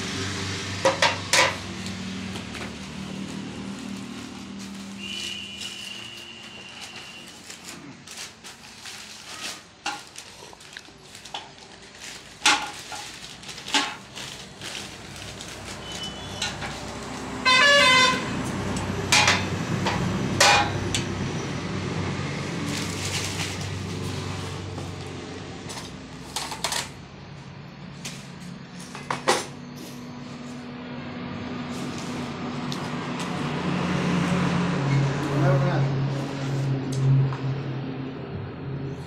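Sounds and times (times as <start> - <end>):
paper crinkling and rustling: 2.2 - 17.4, 22.6 - 27.0, 31.6 - 33.5
vehicle horn honk: 5.0 - 7.4, 17.4 - 18.4.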